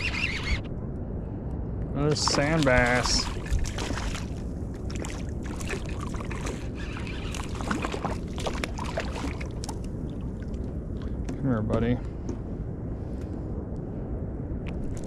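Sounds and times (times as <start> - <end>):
low wash of water: 0.7 - 11.4
fish splashing at water surface: 2.2 - 11.1.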